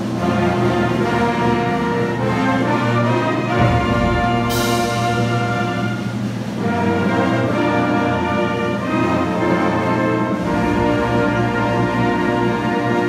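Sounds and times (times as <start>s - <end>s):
low brass chords: 0.1s - 13.0s
concert band playing: 2.6s - 7.6s, 9.8s - 13.0s.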